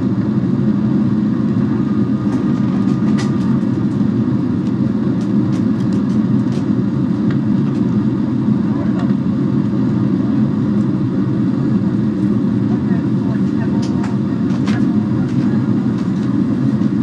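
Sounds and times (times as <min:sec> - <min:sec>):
jet engines droning in cabin: 0:00.0 - 0:17.0.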